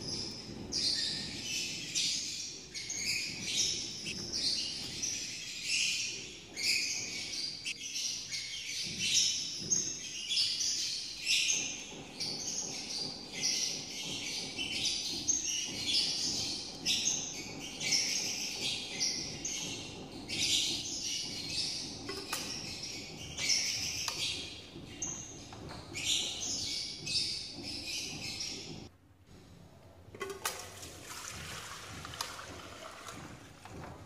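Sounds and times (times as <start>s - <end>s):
small birds chirping: 0.0s - 28.9s
oil trickling into a pot: 30.2s - 33.7s.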